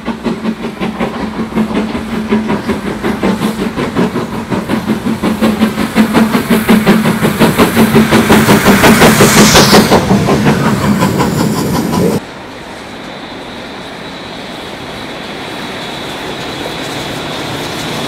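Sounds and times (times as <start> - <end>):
distant train: 0.0 - 18.0
steam locomotive exhaust beating: 0.0 - 18.0.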